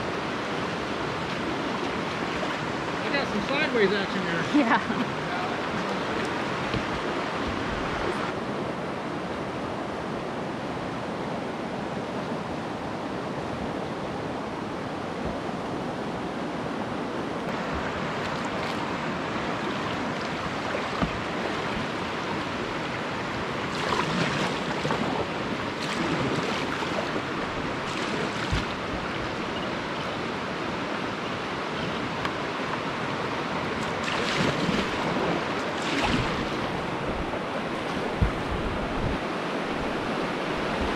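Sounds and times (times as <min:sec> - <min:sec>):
water splashes: 0:00.0 - 0:08.4, 0:17.5 - 0:40.9
river water rushing over rapids: 0:00.0 - 0:40.9.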